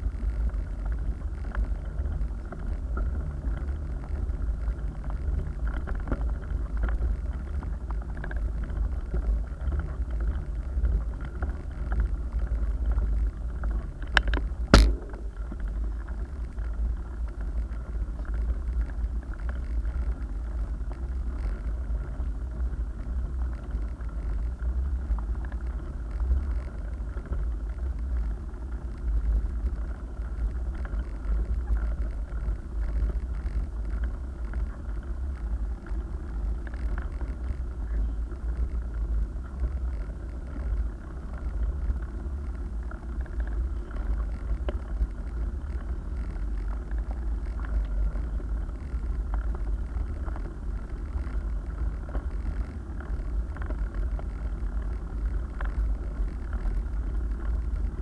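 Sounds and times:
bike tyres rumbling on asphalt: 0.0s - 58.0s
sharp knock: 14.8s - 15.4s.

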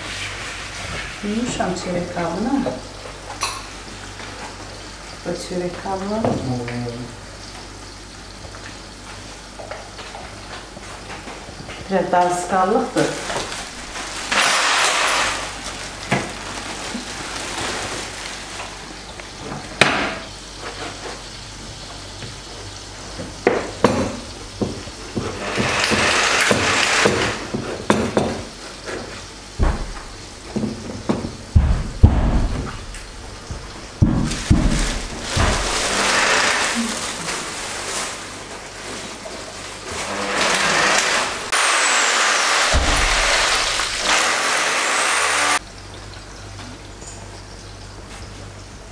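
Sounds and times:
plastic bag crinkling: 13.1s - 18.9s, 34.2s - 40.2s
electric drill boring into wall: 13.8s - 15.6s, 25.4s - 27.4s, 35.4s - 36.8s, 40.0s - 45.6s.

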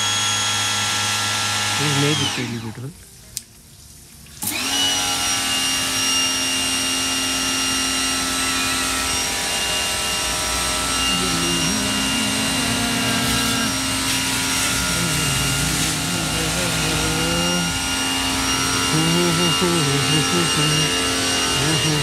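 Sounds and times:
pressure washer whining: 0.0s - 2.9s, 4.4s - 22.0s
water jet spraying: 0.0s - 2.9s, 7.6s - 22.0s.

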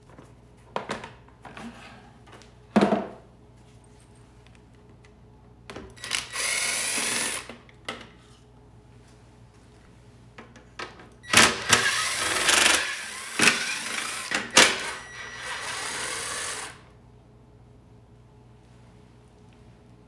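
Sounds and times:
cordless drill running: 6.0s - 7.5s, 11.3s - 16.9s.

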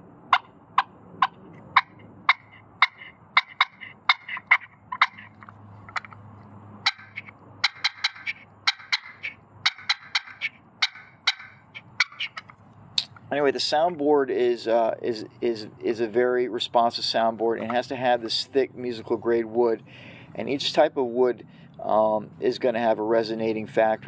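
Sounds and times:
turkey call clucks: 0.3s - 6.2s, 6.8s - 13.2s, 17.6s - 18.0s.

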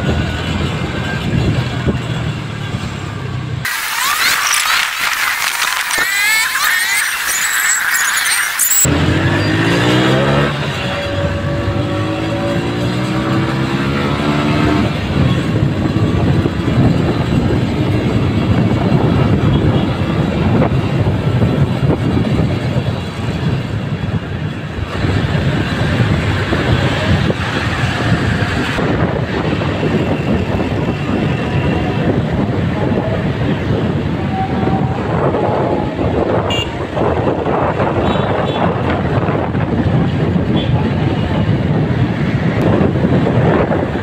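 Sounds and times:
road noise: 0.0s - 44.0s
motorcycle engine: 2.0s - 20.1s
wind noise: 3.8s - 44.0s.

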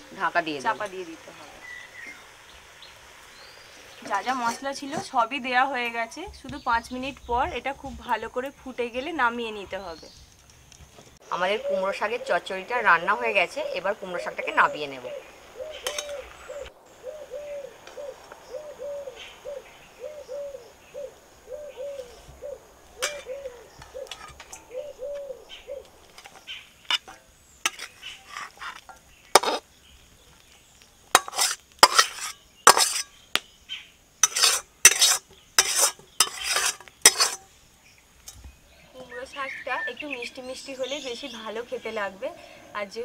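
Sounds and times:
bird low call: 11.3s - 27.0s
metal spatula scraping a wok: 15.8s - 16.4s, 23.0s - 24.6s, 26.2s - 29.6s, 31.1s - 33.2s, 34.2s - 37.5s.

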